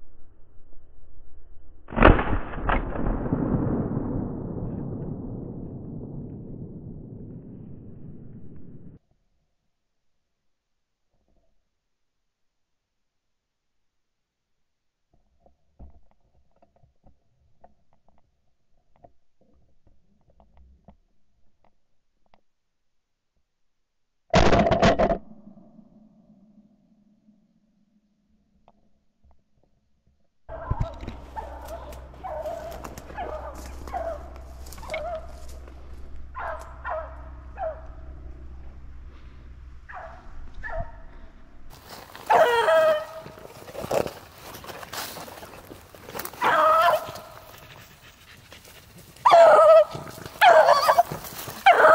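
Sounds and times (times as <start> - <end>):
low rumble: 0.0 - 9.0, 30.5 - 46.1
dogs baying: 30.5 - 43.8, 46.1 - 51.9.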